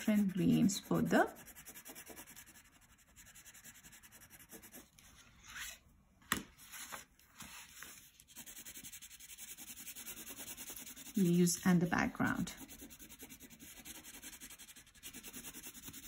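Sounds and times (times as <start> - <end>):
crayon rubbing on paper: 0.0 - 4.8, 8.3 - 16.0.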